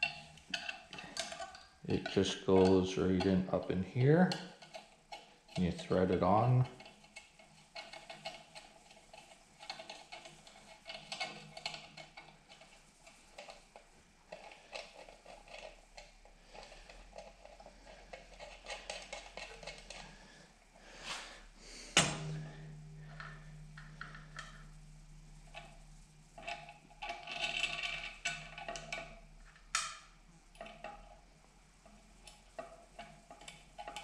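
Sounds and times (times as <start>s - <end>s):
metal parts clicking: 0.0s - 20.3s, 25.5s - 31.1s, 31.8s - 34.0s
steady low hum: 15.3s - 33.8s.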